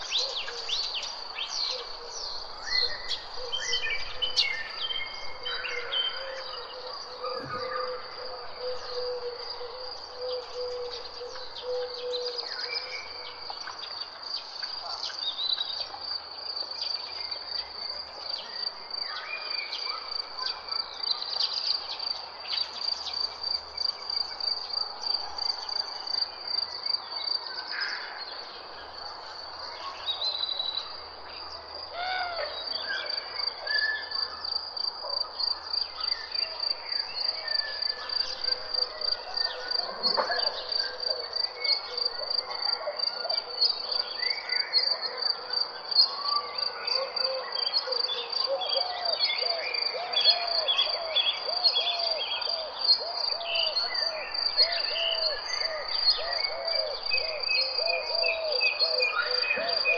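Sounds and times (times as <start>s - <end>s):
birds chirping and calling: 0.0s - 13.7s, 37.2s - 45.0s, 48.4s - 59.9s.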